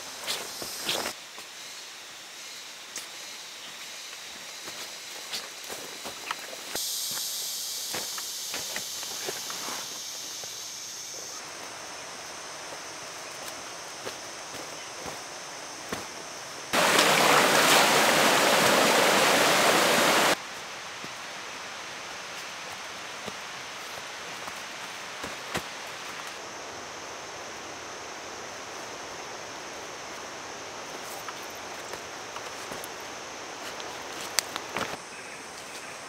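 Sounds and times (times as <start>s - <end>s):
steady high-pitched hiss: 0.0s - 36.0s
rush of flowing water: 16.8s - 21.1s.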